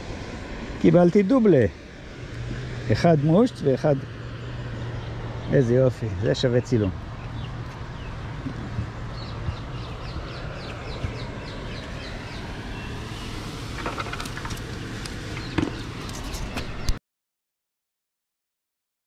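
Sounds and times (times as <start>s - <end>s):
small bird singing: 4.4s - 17.0s.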